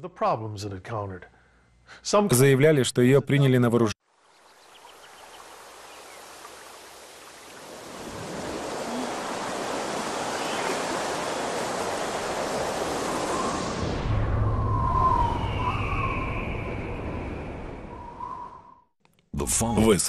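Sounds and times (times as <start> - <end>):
rushing wind-like whoosh: 9.6 - 18.8.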